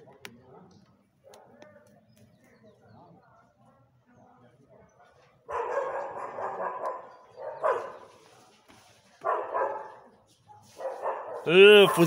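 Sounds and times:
dog barking: 0:00.0 - 0:01.7, 0:05.5 - 0:08.2, 0:09.2 - 0:12.0.

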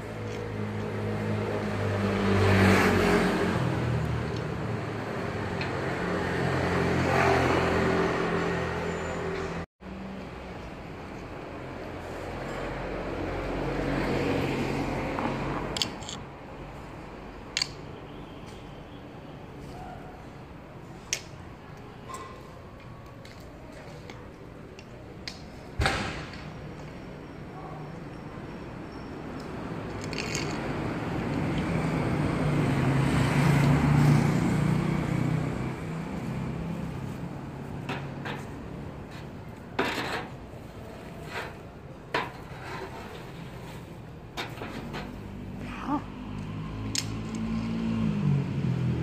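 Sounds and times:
traffic passing: 0:00.0 - 0:49.0
steady background noise: 0:09.8 - 0:49.0
motor scooter passing: 0:30.1 - 0:37.8, 0:45.2 - 0:49.0.

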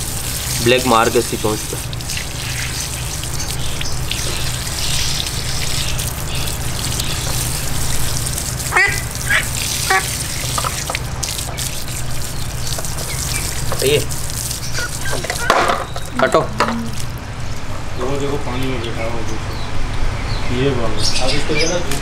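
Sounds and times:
hose water spraying and splattering: 0:00.0 - 0:18.8
duck high rising calls: 0:08.7 - 0:10.6, 0:14.7 - 0:15.5.

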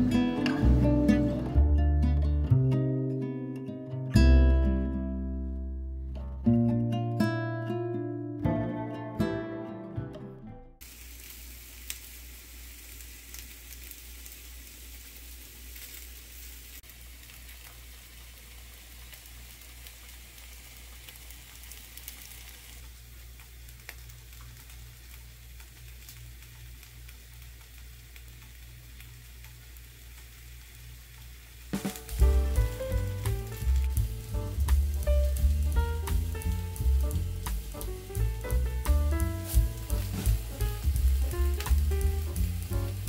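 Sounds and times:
light crackles and ticks: 0:11.2 - 0:12.1, 0:12.9 - 0:16.2, 0:16.8 - 0:43.0.

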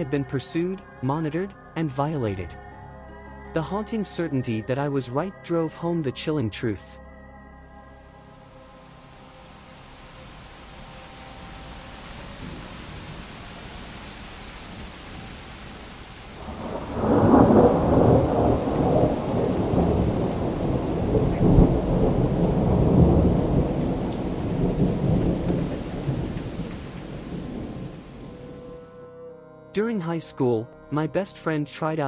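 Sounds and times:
steady rain: 0:08.4 - 0:28.7
thunder rolling: 0:11.4 - 0:28.7.

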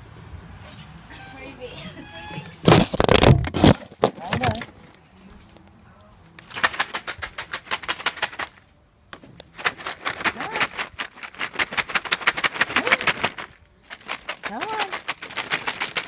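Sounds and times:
cat treats rattling in container: 0:06.4 - 0:08.6, 0:09.5 - 0:16.0.

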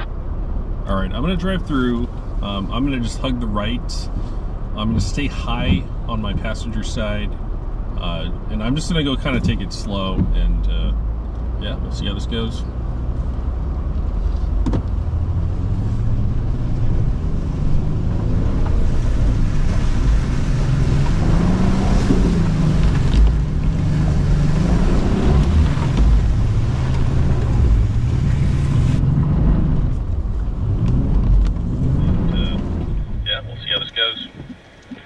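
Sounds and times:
engine revving under load: 0:09.4 - 0:33.9
mud and water splashing: 0:17.6 - 0:29.1.

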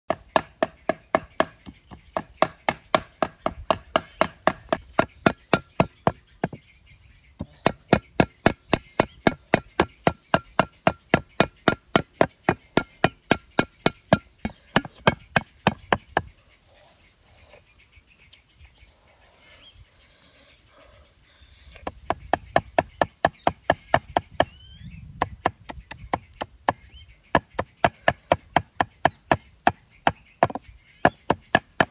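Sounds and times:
cleaver chopping on wooden block: 0:00.1 - 0:06.6, 0:07.4 - 0:16.3, 0:25.2 - 0:31.9.

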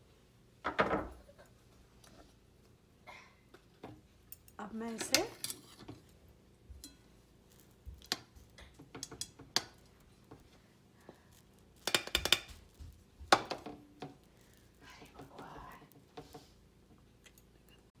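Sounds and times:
spoon tapping on steel pan: 0:06.8 - 0:07.1.

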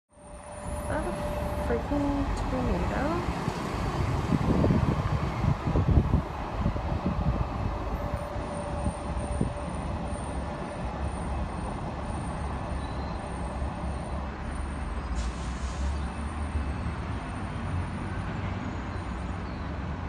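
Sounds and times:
city traffic: 0:00.1 - 0:20.0
wind: 0:00.1 - 0:20.0
short hiss: 0:15.2 - 0:16.0.

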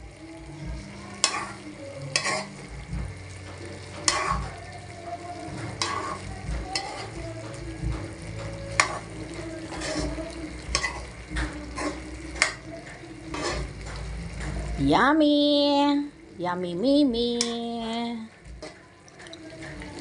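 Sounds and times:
sauce sizzling: 0:00.0 - 0:20.0
utensil scraping a pan: 0:01.0 - 0:02.7, 0:03.6 - 0:07.3, 0:07.9 - 0:14.1.

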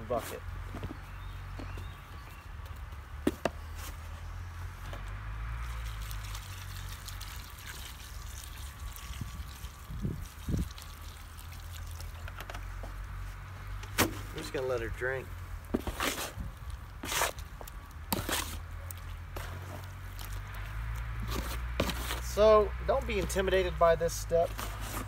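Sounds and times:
water trickling into cement: 0:05.7 - 0:13.1, 0:19.8 - 0:21.1.

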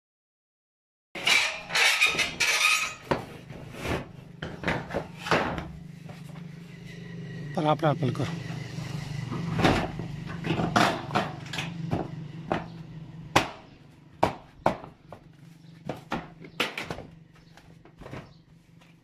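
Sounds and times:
footsteps on metal roofing: 0:14.4 - 0:19.0.

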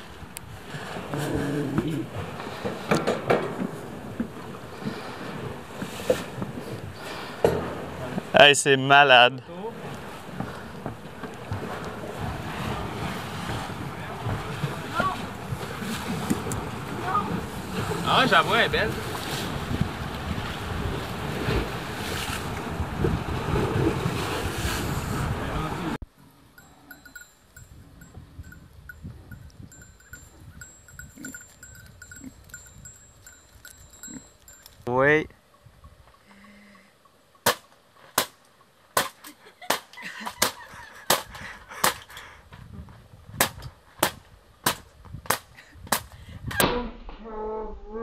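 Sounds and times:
sea surf breaking on rocks: 0:00.0 - 0:26.0
wind buffeting microphone: 0:09.5 - 0:26.0, 0:26.9 - 0:34.6, 0:40.7 - 0:46.7
people laughing: 0:39.3 - 0:42.3.

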